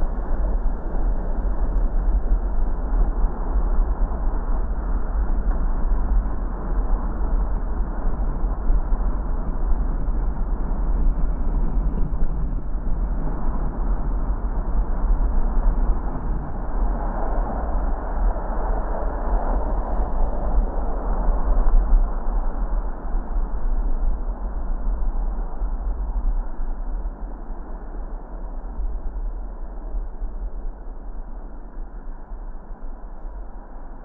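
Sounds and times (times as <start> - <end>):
car road and engine noise: 0.0 - 34.0.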